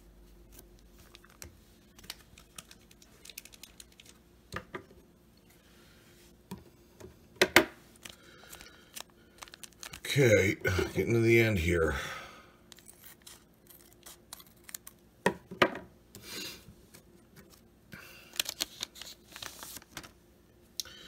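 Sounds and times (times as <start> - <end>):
card pack wrapper crinkling: 0.6 - 4.2, 8.0 - 10.6, 12.7 - 15.0, 18.2 - 20.2.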